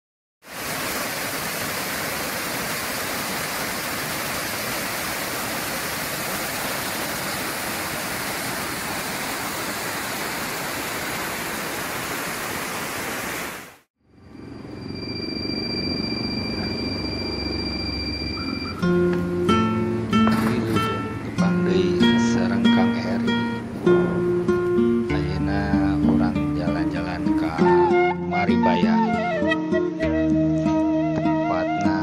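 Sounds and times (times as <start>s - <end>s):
waterfall rushing over rocks: 0.5s - 13.9s.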